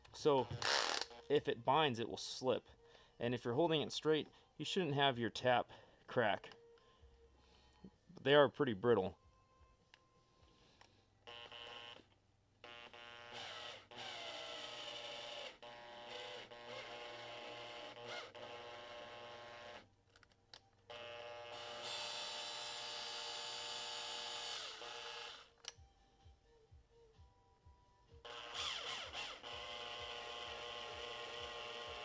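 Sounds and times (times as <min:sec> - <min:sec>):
cordless drill motor whining: 0:00.4 - 0:01.2, 0:11.2 - 0:19.8, 0:20.9 - 0:25.6, 0:28.3 - 0:32.0.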